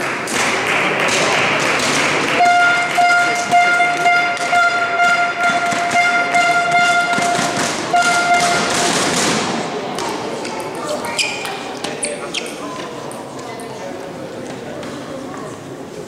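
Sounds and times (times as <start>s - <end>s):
horn blowing steady note: 2.3s - 8.8s.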